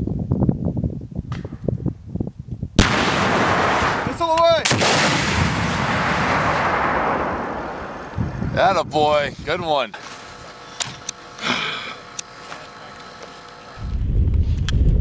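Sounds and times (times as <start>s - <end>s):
missile launch blast: 2.8s - 8.2s
missile rushing noise: 2.8s - 8.7s.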